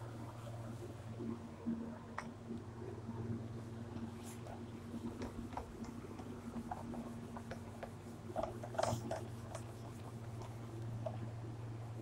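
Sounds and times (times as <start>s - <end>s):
steady low hum: 0.0s - 12.0s
whiteboard wiping strokes: 4.1s - 10.7s.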